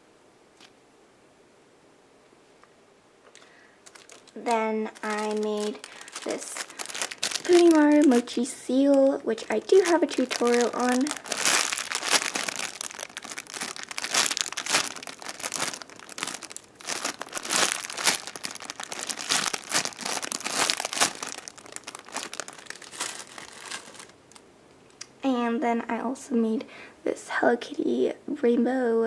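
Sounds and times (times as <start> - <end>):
plastic bag crinkling: 3.3 - 24.4.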